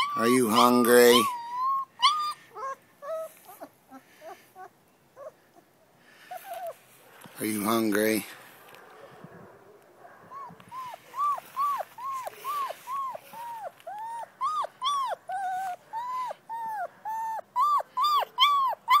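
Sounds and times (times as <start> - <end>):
puppy whining: 0.0 - 5.7, 6.3 - 6.8, 10.2 - 19.0.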